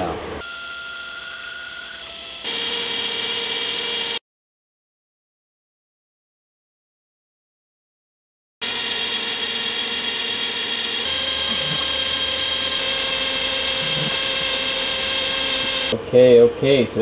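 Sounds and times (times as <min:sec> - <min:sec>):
metal lathe whining: 0:00.4 - 0:04.2, 0:08.6 - 0:16.0
turning tool cutting steel: 0:00.9 - 0:04.2, 0:08.6 - 0:16.0.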